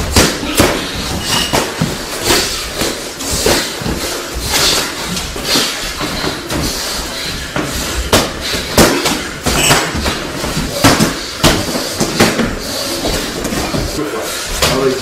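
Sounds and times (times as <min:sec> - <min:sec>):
punches thudding on gloves: 0:00.0 - 0:04.0.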